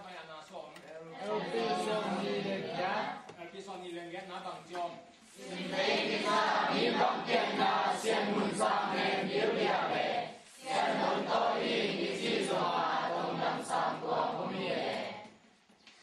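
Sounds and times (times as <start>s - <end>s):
group chanting in unison: 1.1s - 3.3s, 5.4s - 15.4s.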